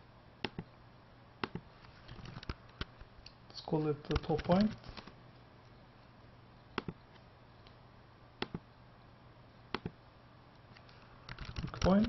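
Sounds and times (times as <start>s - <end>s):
faint steady hum: 0.0s - 12.0s
computer mouse clicking: 6.8s - 7.8s, 8.4s - 8.6s, 9.7s - 10.0s, 10.8s - 12.0s.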